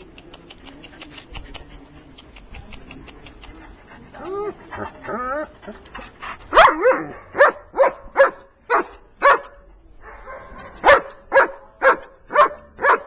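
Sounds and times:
dog barking: 6.5 - 13.0.

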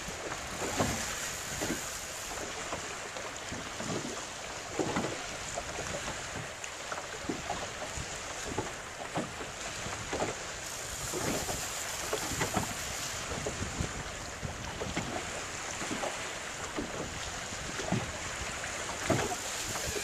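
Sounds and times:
waves slapping boat hull: 0.0 - 20.0
wind buffeting microphone: 10.8 - 20.0.

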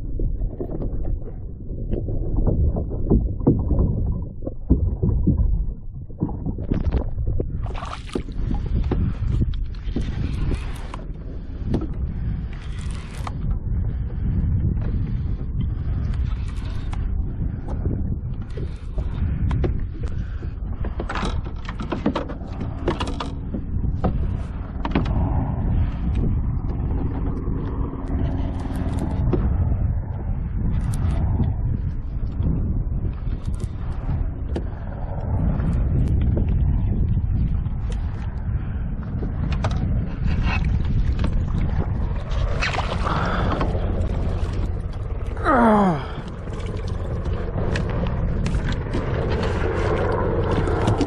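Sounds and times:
underwater rumble of moving water: 0.0 - 51.0.

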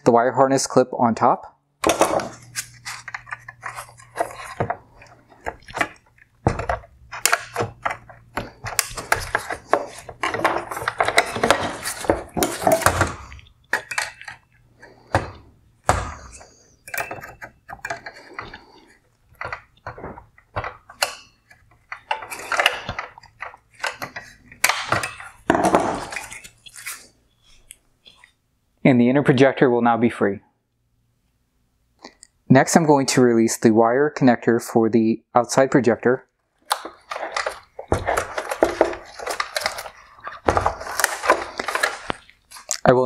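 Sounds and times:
plastic parts clicking and scraping: 1.8 - 28.3, 36.6 - 42.9.

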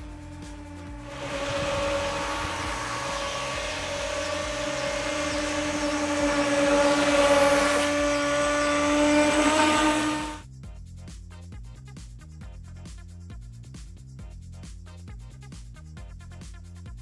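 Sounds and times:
electric motor whining: 0.0 - 10.4.

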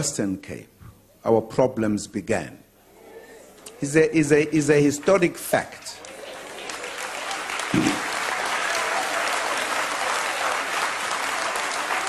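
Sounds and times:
people applauding: 3.6 - 12.0.

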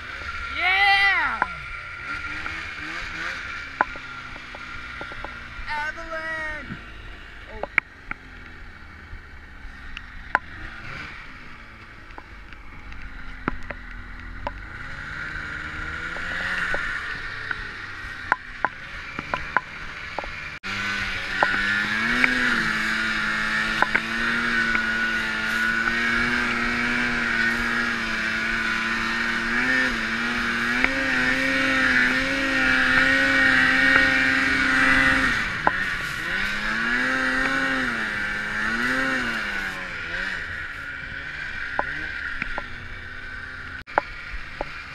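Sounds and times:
snowmobile engine revving: 0.0 - 44.9.

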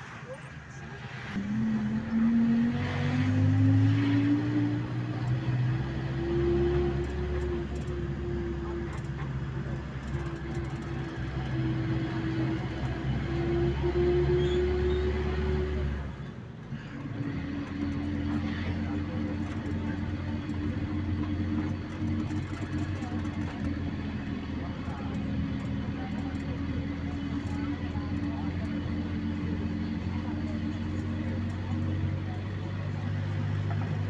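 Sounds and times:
road noise rushing: 0.0 - 34.0
vehicle engine running: 1.4 - 34.0.

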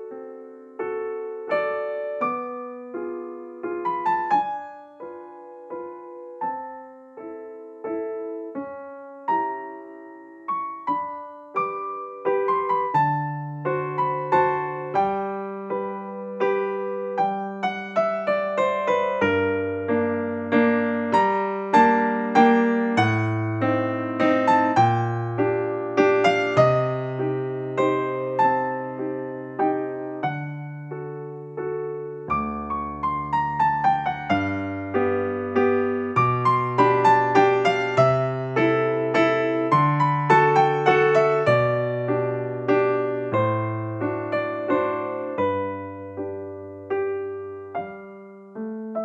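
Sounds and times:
gentle piano music: 0.0 - 49.0.

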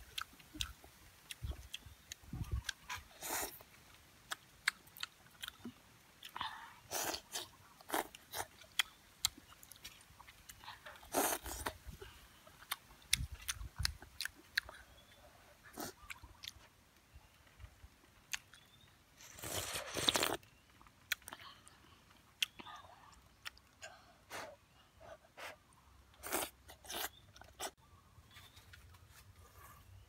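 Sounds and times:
person chewing wetly: 0.1 - 3.7, 4.3 - 16.7, 22.1 - 23.8.

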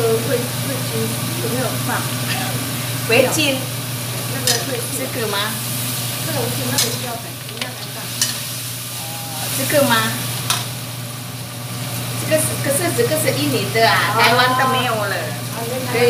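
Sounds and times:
food sizzling in a wok: 0.0 - 16.0
metal spatula scraping wok: 6.7 - 7.1, 7.7 - 8.6.

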